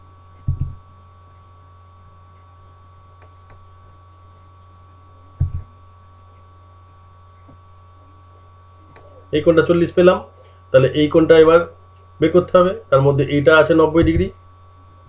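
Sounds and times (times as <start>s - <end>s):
mains hum: 0.0s - 15.0s
low thump: 0.4s - 0.8s, 5.4s - 5.7s, 14.0s - 14.3s.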